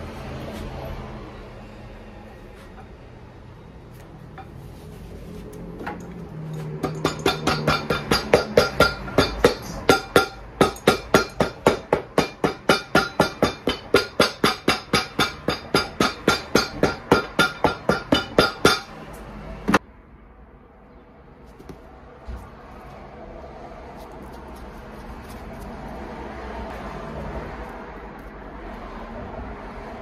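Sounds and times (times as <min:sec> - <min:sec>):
hammer beating on leather boot: 0:06.8 - 0:18.9.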